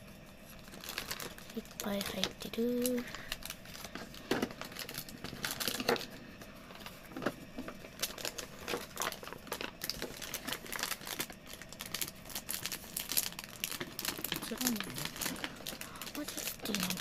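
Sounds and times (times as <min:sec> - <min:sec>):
plastic wrappers crinkling: 0:00.3 - 0:17.0.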